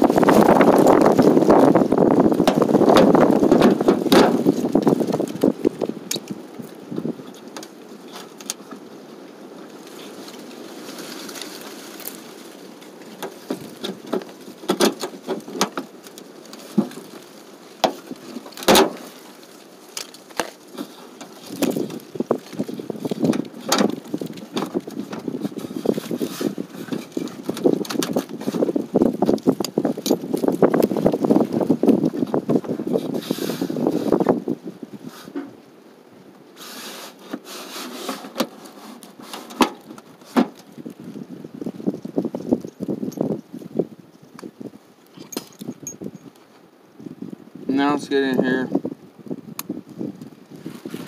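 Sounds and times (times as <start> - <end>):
wind buffeting microphone: 0.0 - 8.4, 20.8 - 35.7, 40.5 - 51.0.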